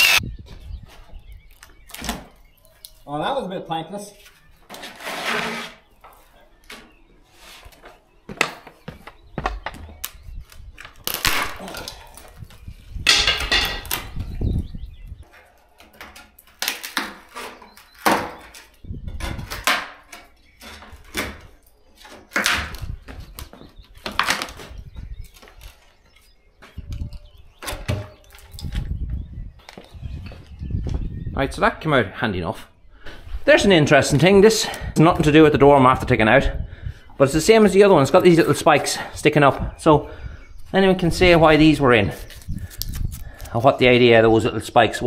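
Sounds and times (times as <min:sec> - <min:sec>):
timber cracking and scraping: 0:00.0 - 0:00.2, 0:04.3 - 0:14.4, 0:15.2 - 0:29.0.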